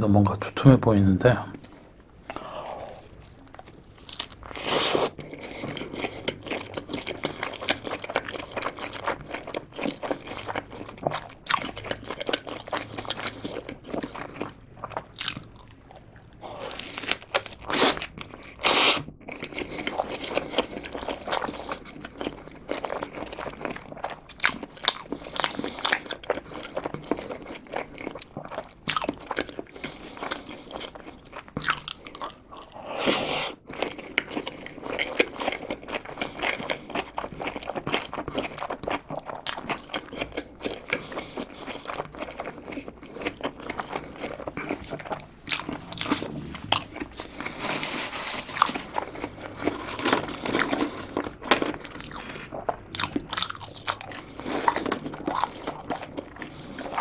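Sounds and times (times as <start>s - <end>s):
close-miked chewing: 1.4s - 57.0s.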